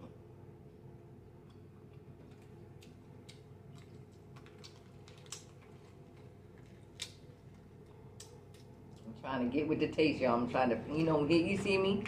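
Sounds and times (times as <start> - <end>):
steady low hum: 0.0 - 12.0
crab shells cracking by hand: 2.3 - 9.0.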